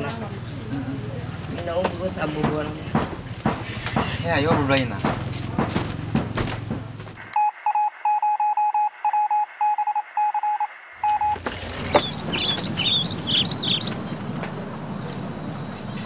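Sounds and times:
morse code beeping: 7.4 - 13.0
high gliding chirps: 7.7 - 16.0.

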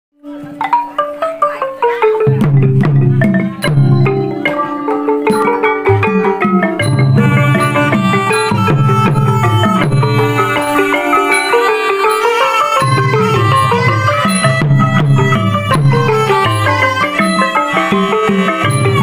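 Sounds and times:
drums: 0.2 - 19.0
xylophones and gongs playing: 0.2 - 19.0.

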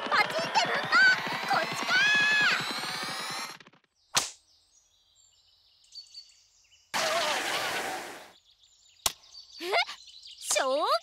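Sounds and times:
faint bird chirps: 4.4 - 6.9.

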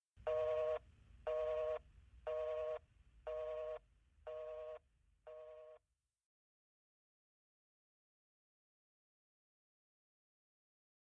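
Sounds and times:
telephone busy signal beeps: 0.3 - 5.8.

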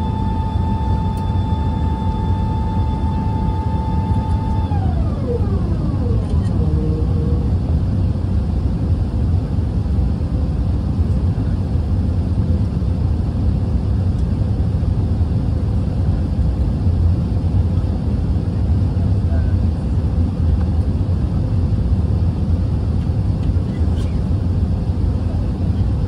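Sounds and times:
faint steady hum: 0.0 - 14.4
airplane cabin low rumble: 0.0 - 26.0.

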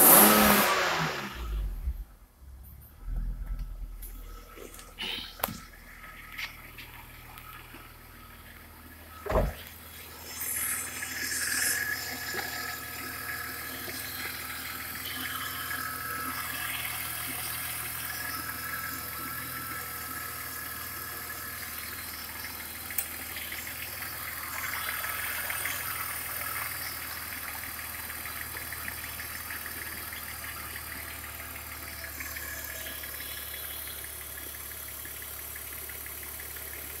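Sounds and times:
car engine starting and idling: 0.0 - 37.0
starter clunk: 9.2 - 9.8.

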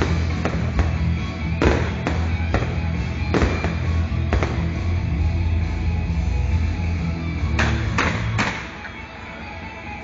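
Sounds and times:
fireworks bursting: 0.0 - 4.8
loud music with heavy bass: 0.0 - 8.4.

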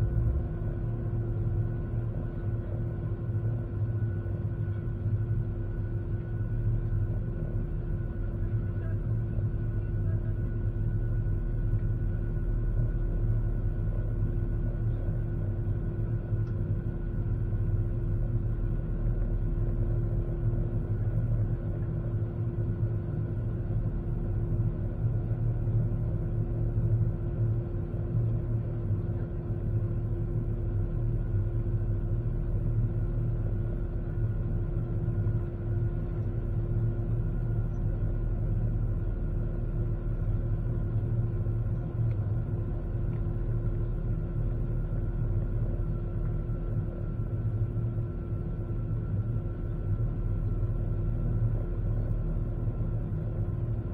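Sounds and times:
aircraft cabin engine rumble: 0.0 - 53.9
constant hum tone: 0.0 - 53.9.

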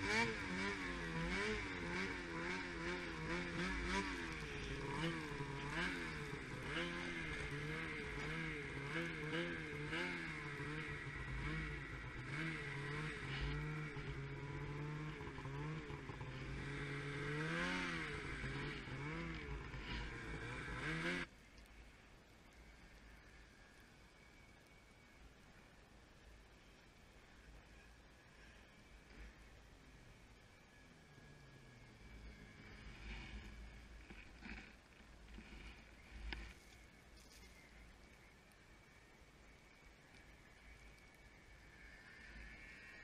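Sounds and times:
snowmobile engine revving: 0.0 - 21.3, 28.4 - 36.8.

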